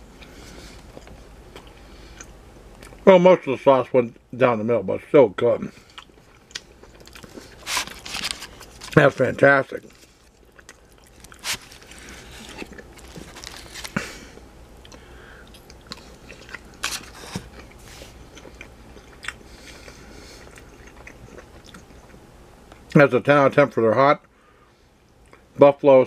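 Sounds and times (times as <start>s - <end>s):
person chewing food: 0.0s - 3.0s, 5.7s - 9.1s, 9.8s - 22.9s.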